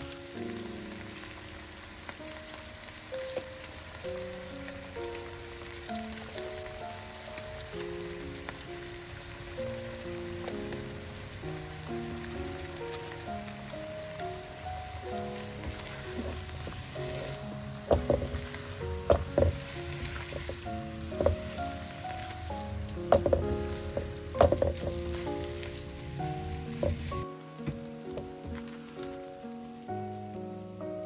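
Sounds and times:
cabbage sizzling in a wok: 0.0s - 31.0s
soft background music: 0.0s - 31.0s
spatula scraping and knocking pan: 15.6s - 21.6s, 23.0s - 25.8s.

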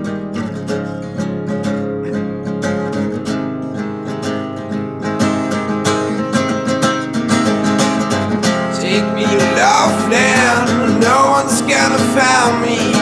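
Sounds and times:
strummed acoustic guitar: 0.0s - 13.0s
person singing: 8.7s - 13.0s.

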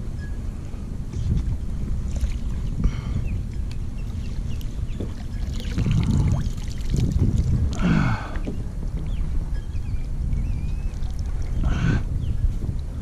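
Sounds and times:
wind buffeting microphone: 0.0s - 13.0s
water moving around kayak: 1.1s - 11.7s.

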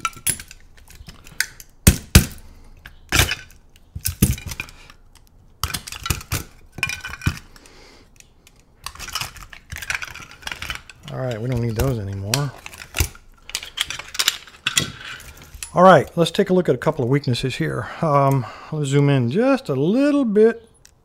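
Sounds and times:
plastic covers snapping off metal: 0.0s - 7.6s, 8.2s - 15.6s.

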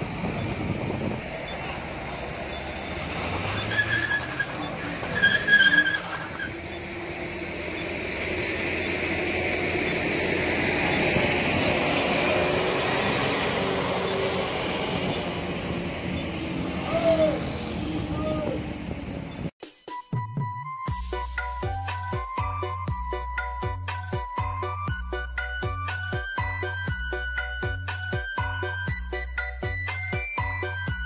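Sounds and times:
tyres spinning on road: 0.0s - 19.5s
diesel truck engine straining: 0.0s - 19.6s
short high squeals: 2.5s - 7.0s.

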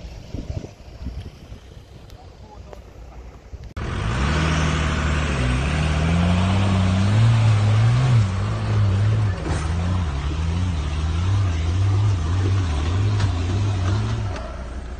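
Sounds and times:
diesel engine revving under load: 3.8s - 14.9s.

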